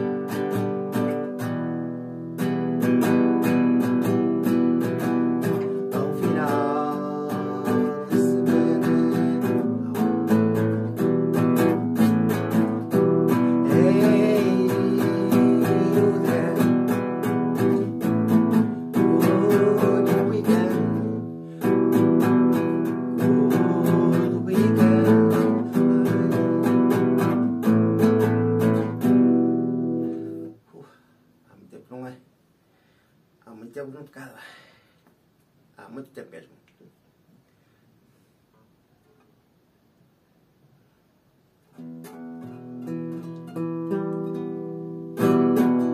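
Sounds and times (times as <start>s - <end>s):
classical guitar strummed chords: 0.0s - 30.6s, 41.6s - 45.9s.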